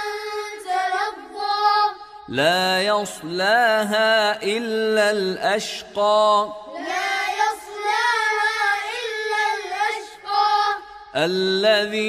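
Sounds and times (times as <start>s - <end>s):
child chanting recitation: 0.0s - 2.5s, 6.6s - 11.3s
man chanting recitation: 2.3s - 6.7s, 11.2s - 12.0s.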